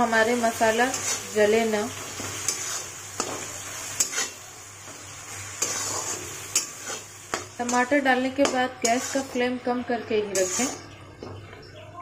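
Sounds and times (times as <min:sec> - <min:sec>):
vegetables sizzling in oil: 0:00.0 - 0:11.4
metal spatula scraping pan: 0:00.4 - 0:04.4, 0:05.5 - 0:10.9.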